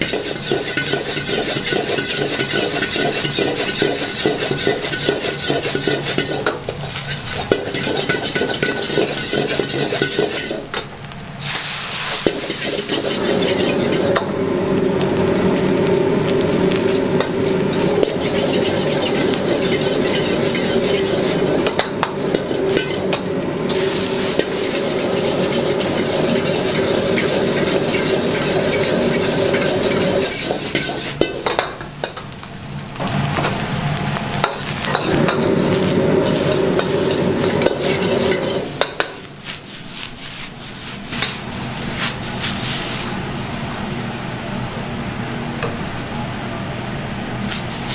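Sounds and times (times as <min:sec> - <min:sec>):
wok ladle scraping and knocking: 0:00.0 - 0:10.8, 0:12.2 - 0:14.4, 0:16.8 - 0:32.2, 0:34.9 - 0:39.2
rice sizzling in a wok: 0:00.0 - 0:47.9.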